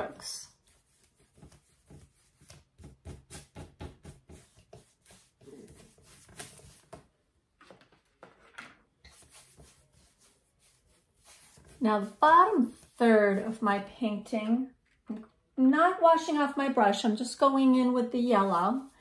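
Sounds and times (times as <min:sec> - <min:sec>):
paintbrush scrubbing canvas: 0:00.0 - 0:07.1, 0:09.0 - 0:13.8.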